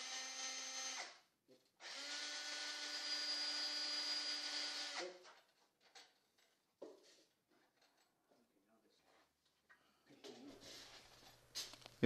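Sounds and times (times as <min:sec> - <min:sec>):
power drill running: 0:00.0 - 0:01.2, 0:01.8 - 0:05.1.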